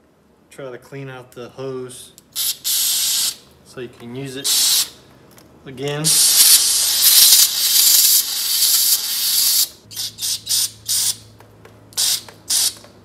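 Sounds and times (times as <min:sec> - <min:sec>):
aerosol can spraying hiss: 0:02.4 - 0:03.4, 0:06.1 - 0:11.2, 0:12.0 - 0:12.8.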